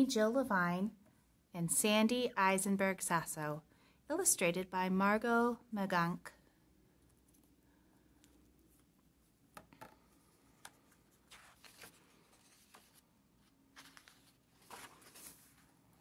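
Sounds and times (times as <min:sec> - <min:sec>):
book pages turning: 0:09.8 - 0:16.0.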